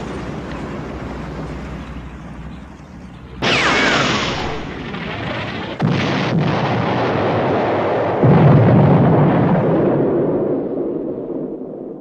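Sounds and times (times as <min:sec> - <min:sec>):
heavy cannon blasts: 0:03.4 - 0:12.0.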